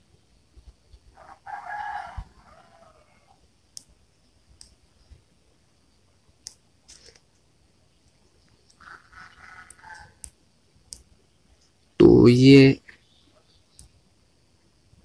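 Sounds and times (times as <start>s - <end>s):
rooster crowing: 1.2s - 3.4s, 8.8s - 10.3s.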